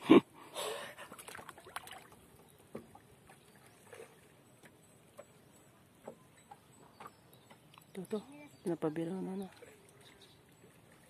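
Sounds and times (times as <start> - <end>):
water splashes against boat: 0.8 - 11.0.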